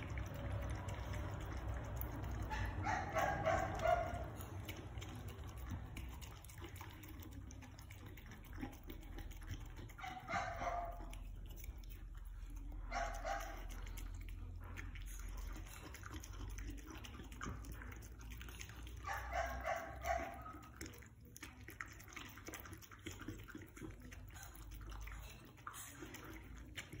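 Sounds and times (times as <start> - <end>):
dog chewing and lapping food: 0.0 - 27.0.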